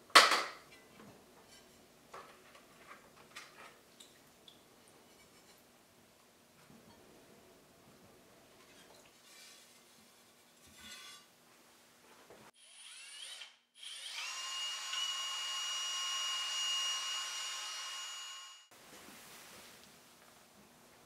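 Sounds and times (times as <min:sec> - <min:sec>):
cordless drill mixer whining: 0:12.6 - 0:18.7.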